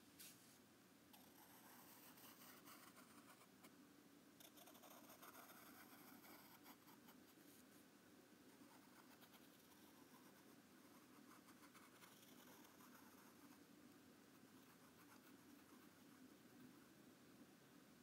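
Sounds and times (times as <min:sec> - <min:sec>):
pencil scratching on paper: 0:01.2 - 0:03.5, 0:04.4 - 0:07.6, 0:08.5 - 0:13.6, 0:14.4 - 0:16.3.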